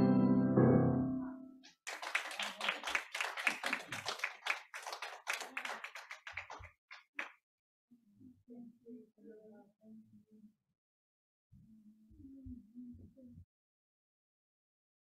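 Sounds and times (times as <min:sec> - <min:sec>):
people clapping: 0:01.6 - 0:07.4.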